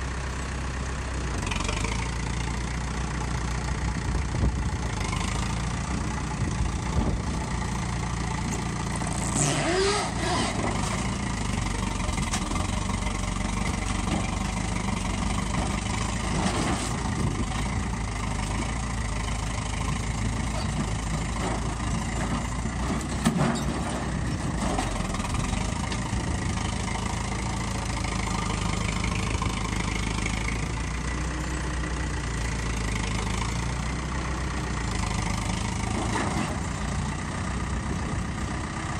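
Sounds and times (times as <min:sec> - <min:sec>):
tractor engine running: 0:00.0 - 0:38.9
metal bangs and crunches: 0:20.5 - 0:26.1.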